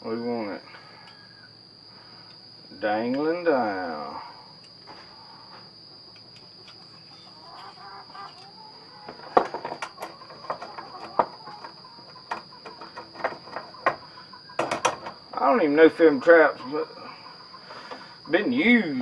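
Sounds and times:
crickets droning: 0:00.0 - 0:19.0
hen clucking: 0:06.2 - 0:19.0.

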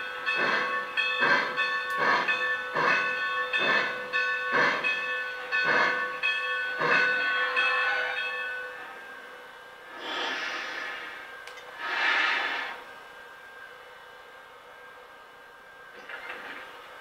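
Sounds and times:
locomotive bell ringing: 0:00.0 - 0:09.6
model steam locomotive chuffs: 0:00.0 - 0:17.0
steam hissing: 0:00.4 - 0:05.0, 0:05.6 - 0:06.1, 0:09.9 - 0:13.0.

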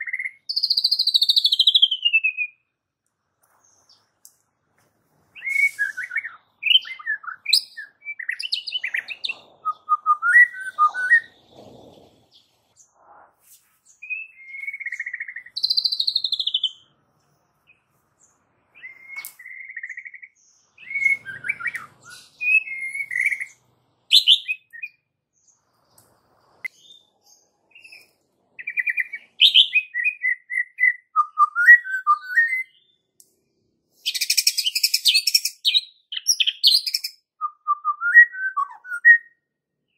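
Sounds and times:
bird singing whistles and trills: 0:00.0 - 0:02.6, 0:05.4 - 0:12.4, 0:13.9 - 0:16.9, 0:18.8 - 0:25.1, 0:27.7 - 0:33.1, 0:34.0 - 0:39.9.

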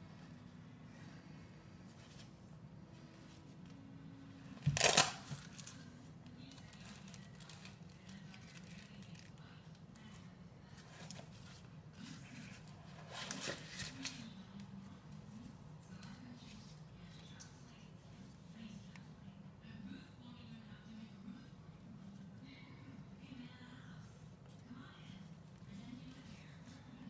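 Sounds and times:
fabric and plastic rustling: 0:04.5 - 0:18.4
fabric case flap ripped open: 0:04.6 - 0:05.4.

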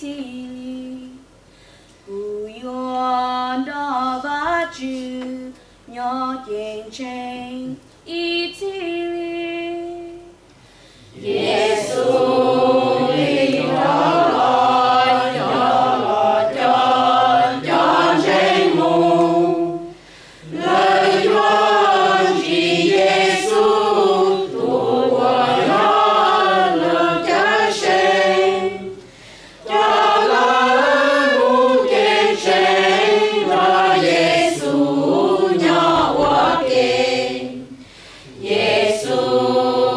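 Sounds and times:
choir singing a hymn: 0:11.1 - 0:29.0, 0:29.6 - 0:39.9.

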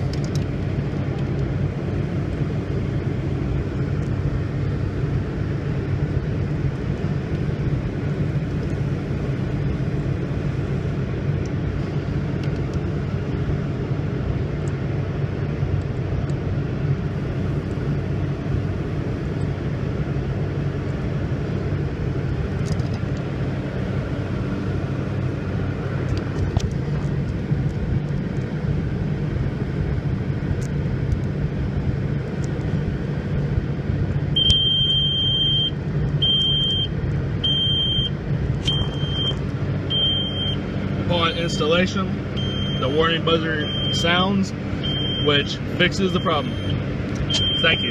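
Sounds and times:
diesel engine idling: 0:00.0 - 0:47.9
high warning buzzer beeps: 0:38.7 - 0:40.6, 0:42.4 - 0:42.9, 0:43.6 - 0:44.1, 0:44.8 - 0:45.3, 0:46.1 - 0:47.9.

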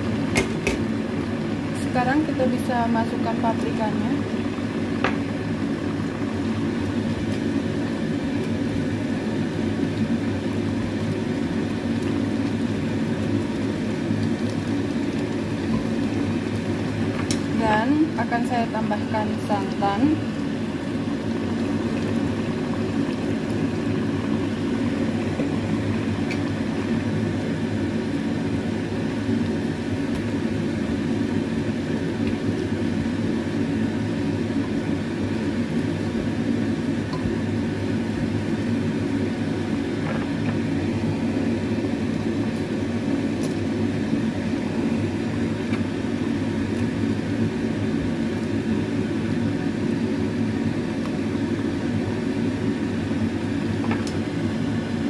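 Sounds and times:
mechanical whir and hum: 0:00.0 - 0:55.0.

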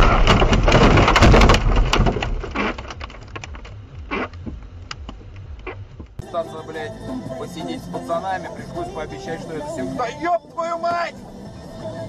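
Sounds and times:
debris settling: 0:00.0 - 0:04.0
car crash impact: 0:00.0 - 0:04.3.

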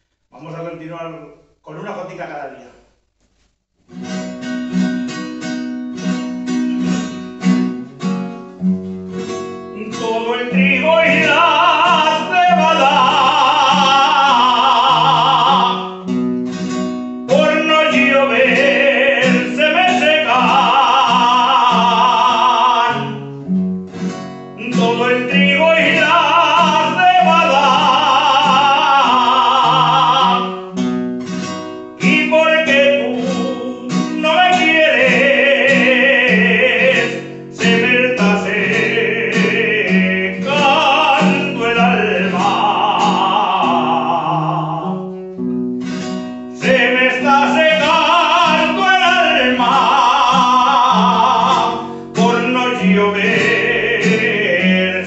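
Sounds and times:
guitar strumming and plucking: 0:03.8 - 0:55.0
man singing: 0:09.7 - 0:16.2, 0:17.3 - 0:23.3, 0:24.6 - 0:30.8, 0:32.0 - 0:45.2, 0:46.5 - 0:55.0.

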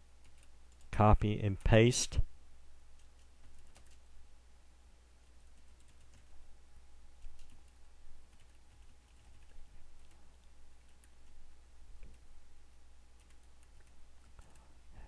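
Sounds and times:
steady low hum: 0:00.0 - 0:15.0
computer keyboard typing: 0:00.2 - 0:00.9, 0:03.0 - 0:04.0, 0:05.3 - 0:06.3, 0:07.2 - 0:11.4, 0:13.2 - 0:14.7.

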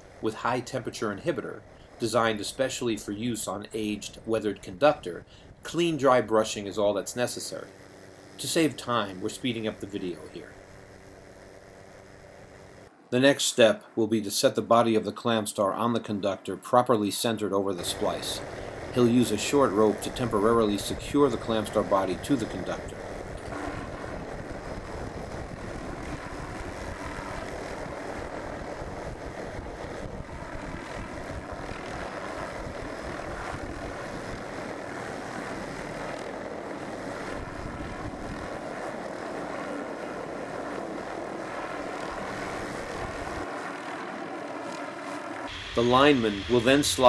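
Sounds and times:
helicopter hovering: 0:00.0 - 0:47.0
wind rumbling on microphone: 0:17.8 - 0:43.6.

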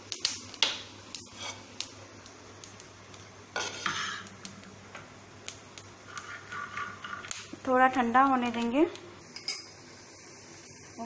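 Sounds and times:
peanuts scraping rattle: 0:06.0 - 0:07.6.

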